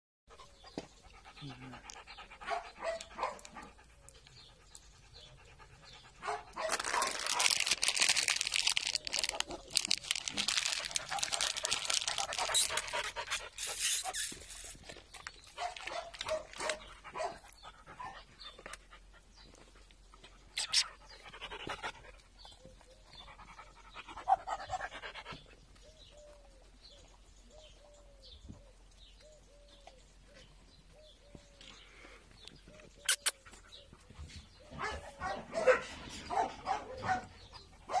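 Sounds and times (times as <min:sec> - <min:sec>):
dog panting: 0:00.3 - 0:06.7, 0:09.4 - 0:14.4, 0:16.6 - 0:26.0.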